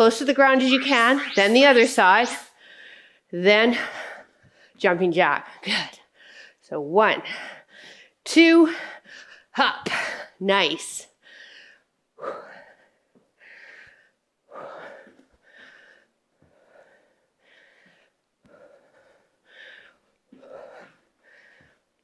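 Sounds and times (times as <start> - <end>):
woman breathing hard: 2.6 - 4.8, 11.2 - 22.0.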